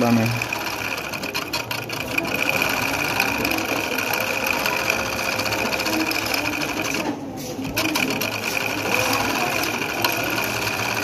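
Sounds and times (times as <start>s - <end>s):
sewing machine running: 0.0s - 11.0s.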